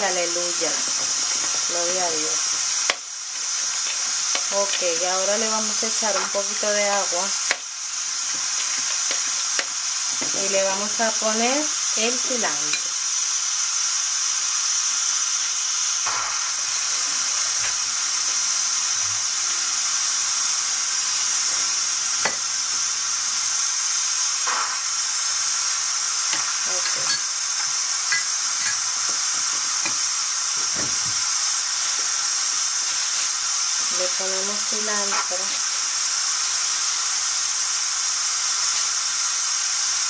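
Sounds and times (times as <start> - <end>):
beans sizzling in a pot: 0.0 - 40.0
metal spoon stirring and clicking: 2.5 - 5.0, 12.5 - 12.9, 26.3 - 28.9.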